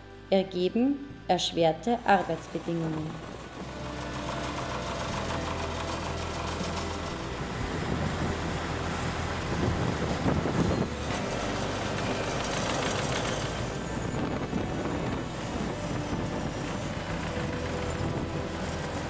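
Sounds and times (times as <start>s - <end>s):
diesel engine running: 1.4s - 19.0s
mechanical clatter: 10.2s - 19.0s.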